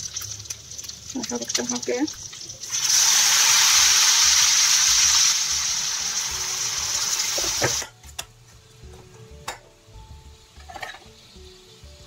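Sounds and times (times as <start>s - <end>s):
water pouring into a wok: 0.0s - 7.8s.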